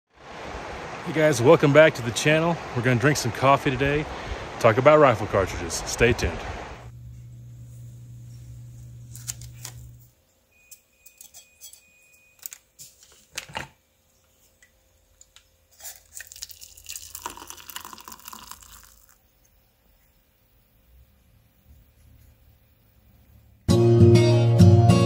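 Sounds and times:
water pouring into metal mug: 0:15.8 - 0:19.2.

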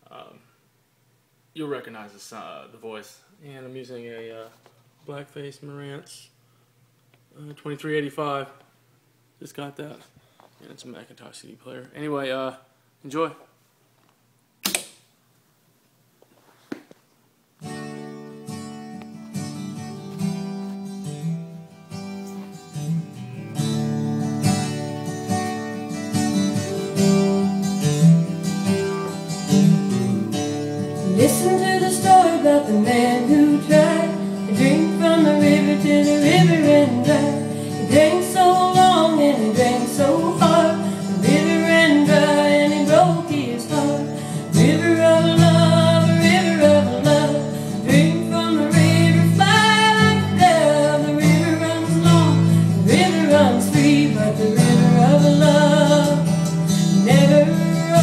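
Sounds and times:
guitar: 0:00.0 - 0:00.6, 0:16.7 - 0:58.0
person singing: 0:31.1 - 0:58.0.

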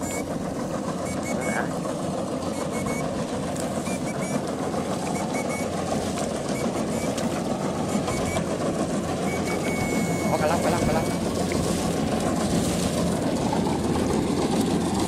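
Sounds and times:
machine drone: 0:00.0 - 0:15.0
short high beeps: 0:01.0 - 0:01.6, 0:02.5 - 0:03.1, 0:03.8 - 0:04.4, 0:05.0 - 0:05.8, 0:06.4 - 0:07.2, 0:07.8 - 0:08.5, 0:09.2 - 0:11.3.

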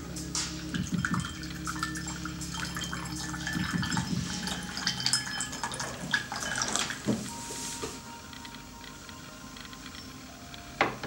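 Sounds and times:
tea pouring into glass: 0:00.7 - 0:07.7.

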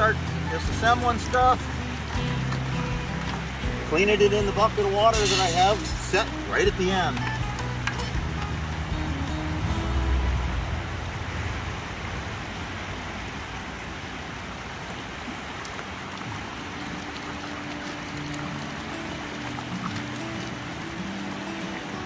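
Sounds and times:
faint background music: 0:00.0 - 0:11.5
river water rushing: 0:00.0 - 0:22.0.

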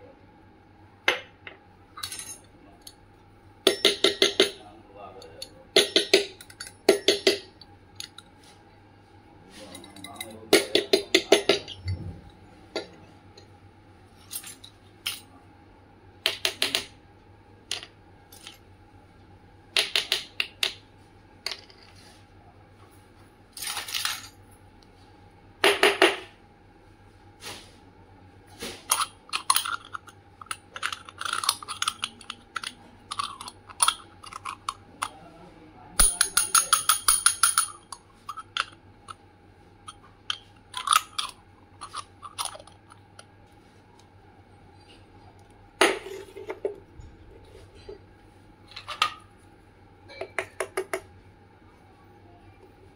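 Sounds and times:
toy metal kitchenware clinking: 0:03.7 - 0:04.6, 0:28.9 - 0:35.1, 0:36.0 - 0:38.8, 0:39.9 - 0:43.0.

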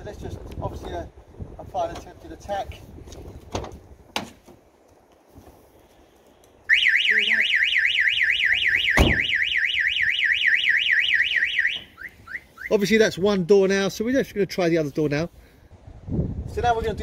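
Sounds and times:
car alarm siren warbling: 0:06.7 - 0:12.8.

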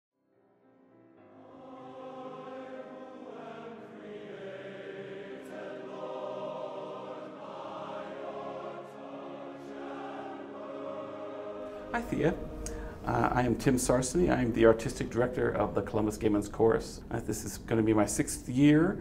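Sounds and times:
choir singing held chords: 0:01.2 - 0:15.8.

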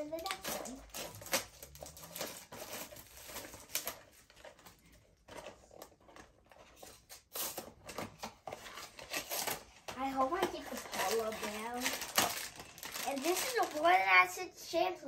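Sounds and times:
cardboard box tearing and rustling: 0:07.3 - 0:09.6.

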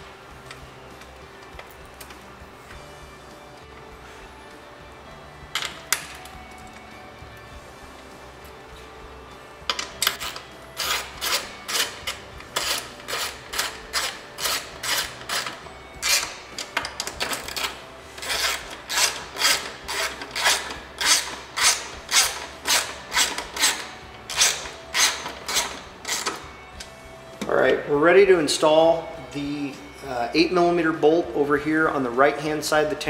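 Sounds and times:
ratchet wrench clicking: 0:09.7 - 0:26.4.

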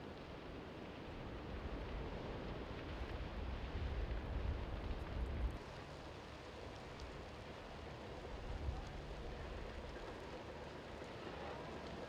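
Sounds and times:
faint fire crackles: 0:00.0 - 0:12.0
wildfire burning rush: 0:00.0 - 0:12.0.

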